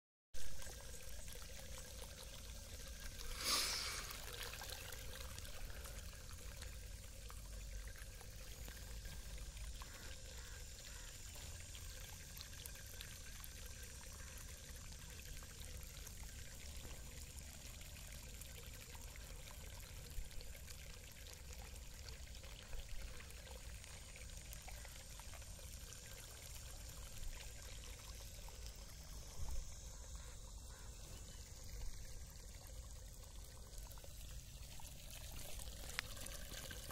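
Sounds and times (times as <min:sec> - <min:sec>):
water gushing and splashing: 0:01.6 - 0:09.6, 0:33.0 - 0:36.9.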